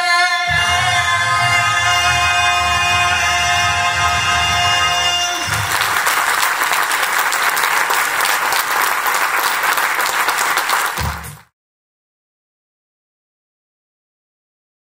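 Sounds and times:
audience applauding: 0:01.8 - 0:11.5.

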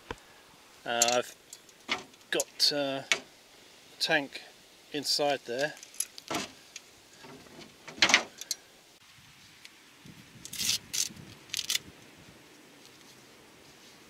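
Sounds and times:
plastic cord rubbing and scraping: 0:10.4 - 0:11.8.

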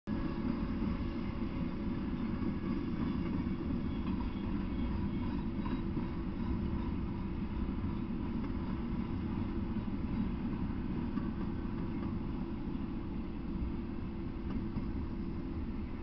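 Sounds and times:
freight train wheels rumbling: 0:00.1 - 0:16.0.

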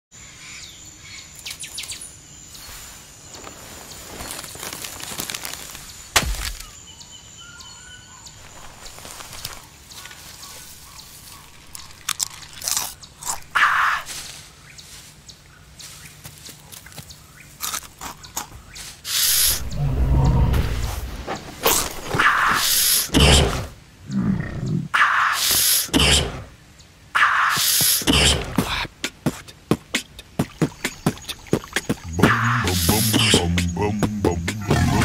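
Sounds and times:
faint high insect-like tone: 0:00.2 - 0:12.1
bird calls: 0:00.2 - 0:35.0
crunching snack chips: 0:04.1 - 0:06.7, 0:11.6 - 0:13.6, 0:17.6 - 0:18.5
sharp crack: 0:06.1 - 0:06.8.

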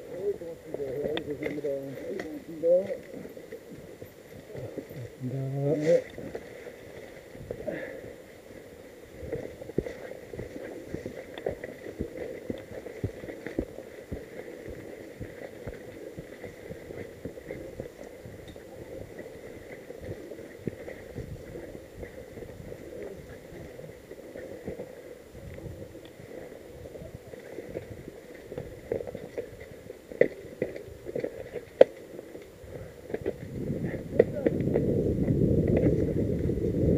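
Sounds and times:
steady rustle: 0:00.0 - 0:36.5.

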